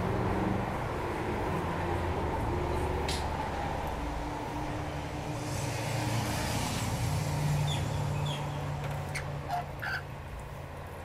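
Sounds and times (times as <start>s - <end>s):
passing vehicle: 0.0s - 11.0s
road traffic rumble: 0.0s - 11.0s
lorikeets chirping: 7.6s - 10.0s.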